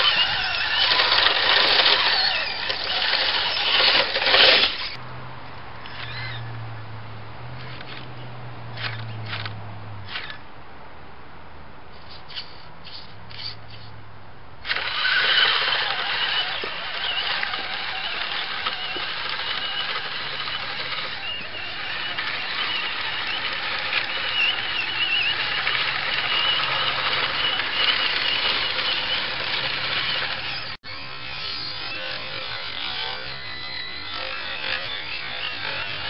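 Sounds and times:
toy truck motor whining: 0.0s - 5.0s, 5.8s - 6.5s, 12.1s - 13.9s, 14.6s - 36.0s.

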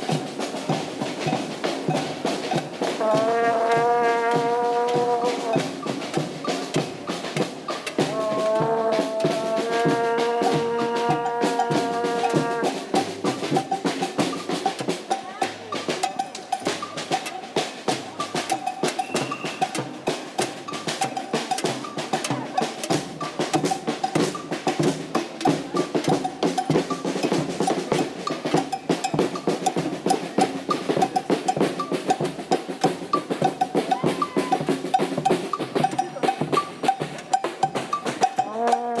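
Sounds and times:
fast snare and bass drumming: 0.0s - 39.0s.

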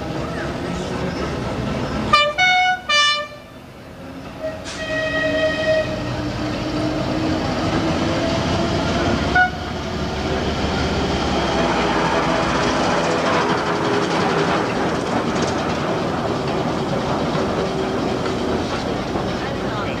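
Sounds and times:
locomotive horn blasts: 2.1s - 3.5s, 4.4s - 6.1s, 9.3s - 9.8s
wheels clicking over rail joints: 10.1s - 20.0s.

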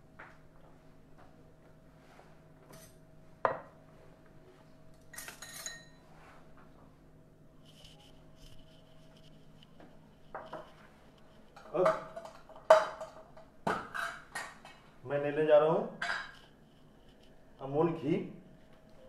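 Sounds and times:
faint steady hum: 0.0s - 19.0s
metallic clinks: 5.0s - 6.0s
cookware clattering: 5.1s - 6.0s, 11.6s - 14.8s, 16.0s - 16.4s.

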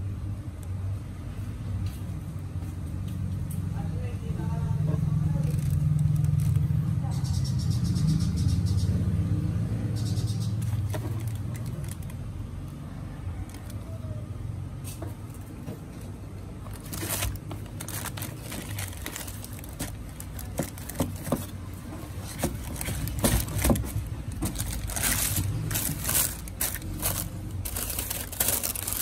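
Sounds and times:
low steady rumble: 0.0s - 29.0s
tissue paper crinkling: 5.4s - 6.7s, 16.6s - 29.0s.

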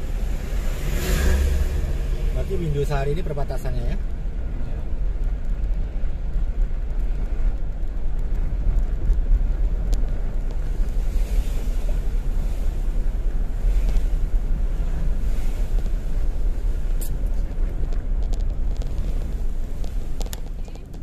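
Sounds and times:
vehicle driving rumble: 0.0s - 21.0s
wind buffeting microphone: 0.0s - 21.0s.

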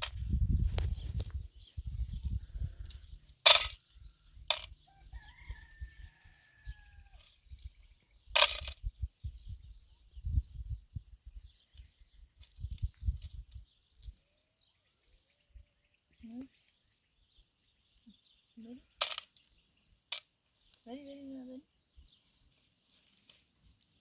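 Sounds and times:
metal tin clinks: 3.5s - 3.8s, 8.4s - 8.8s
distant rooster crowing: 4.7s - 7.4s.

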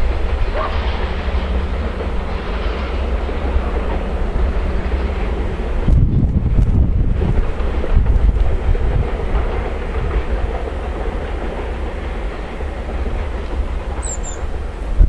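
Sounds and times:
clickety-clack over rail joints: 0.0s - 15.0s
freight train wheels rumbling: 0.0s - 15.0s
high chirp: 14.0s - 14.4s.

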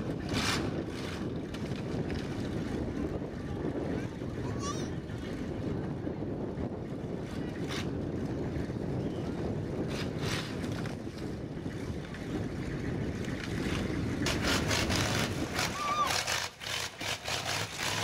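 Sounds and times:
wind buffeting microphone: 0.0s - 18.0s
truck engine rumbling: 4.9s - 18.0s.

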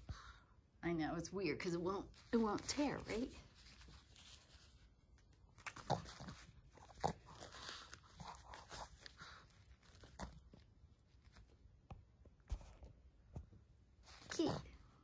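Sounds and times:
paper rustling and crinkling: 2.1s - 11.6s.

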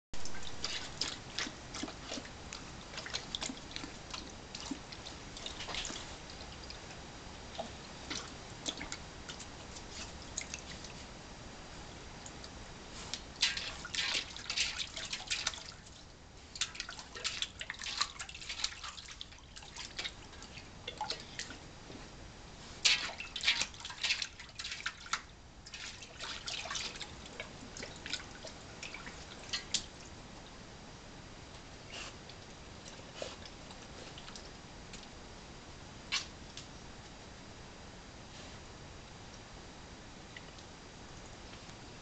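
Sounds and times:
dog lapping water from bowl: 0.3s - 6.9s, 7.5s - 11.0s, 13.3s - 16.0s, 16.6s - 21.6s, 22.9s - 30.1s.

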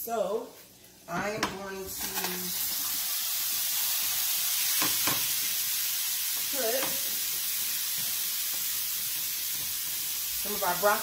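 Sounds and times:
broccoli sizzling in butter: 1.7s - 11.0s.

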